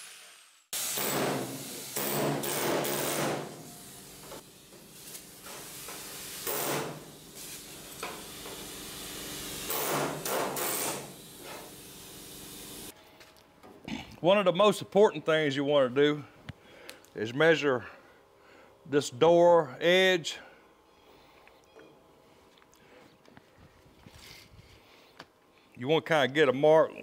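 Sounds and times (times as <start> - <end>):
air chisel hammering sheet metal: 0.8 - 3.7, 6.4 - 7.1, 9.6 - 11.2.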